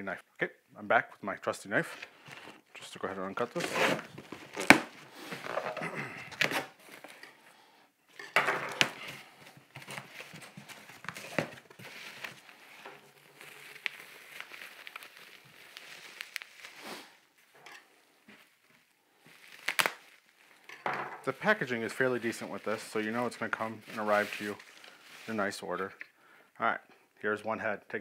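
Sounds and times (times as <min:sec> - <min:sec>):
cardboard scraping and rustling: 0:01.8 - 0:07.2, 0:08.6 - 0:15.2, 0:21.9 - 0:25.4
plastic wrapping crinkling: 0:02.0 - 0:07.4, 0:08.3 - 0:25.6.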